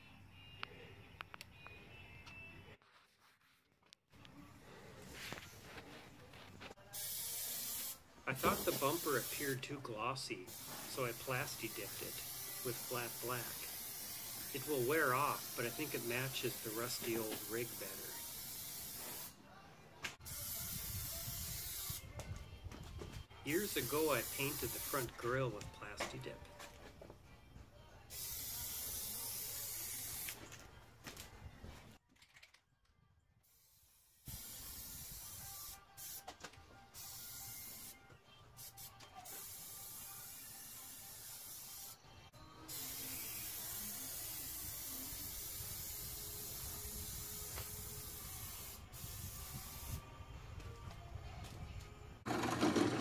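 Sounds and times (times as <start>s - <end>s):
aerosol can spraying: 6.9s - 9.8s, 10.5s - 19.4s, 20.2s - 22.1s, 23.5s - 26.1s, 28.1s - 30.5s, 33.5s - 38.0s, 38.6s - 42.0s, 42.7s - 50.1s.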